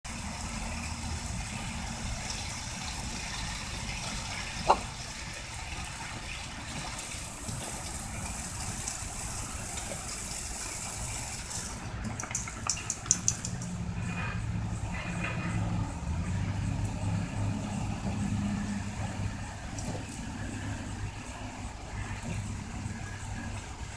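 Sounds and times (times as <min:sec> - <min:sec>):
water jet spraying onto grass: 0:00.1 - 0:12.0.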